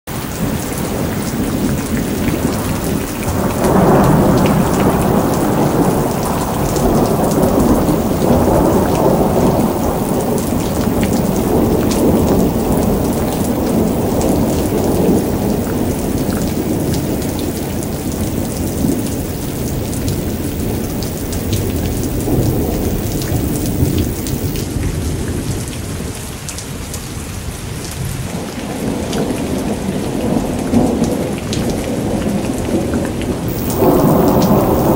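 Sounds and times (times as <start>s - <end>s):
steady rain pattering: 0.1s - 34.9s
rolling thunder: 0.4s - 24.6s, 33.5s - 34.9s.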